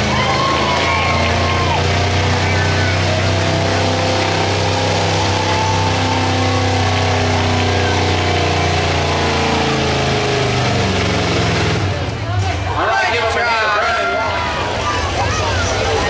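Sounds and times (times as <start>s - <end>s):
pickup engine running under load: 0.0s - 16.0s.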